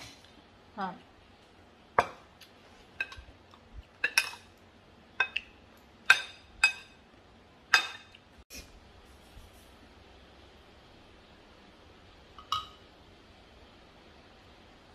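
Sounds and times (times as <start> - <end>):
metal spoon clinking on ceramic plate: 3.0 - 3.3, 4.0 - 4.5, 5.2 - 7.0, 7.7 - 8.2.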